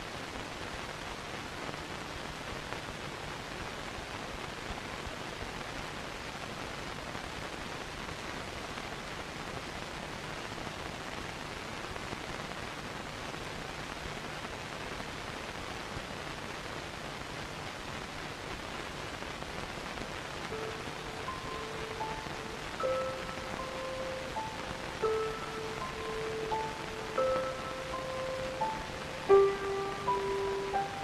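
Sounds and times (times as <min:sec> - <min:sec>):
steady hiss: 0:00.0 - 0:31.0
high instrumental notes: 0:20.6 - 0:31.0.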